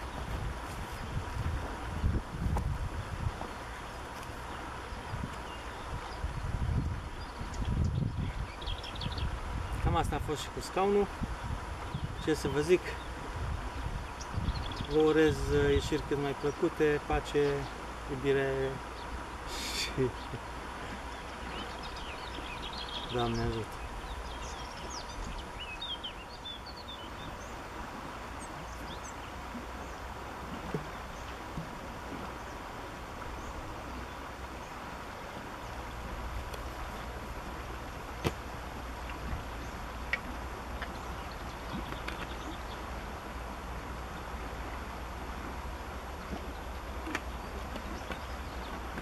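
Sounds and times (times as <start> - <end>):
outdoor background hiss: 0.0 - 49.0
small birds chirping: 3.4 - 11.1, 11.8 - 30.1, 35.5 - 44.6, 46.1 - 49.0
steady low rumble: 16.2 - 49.0.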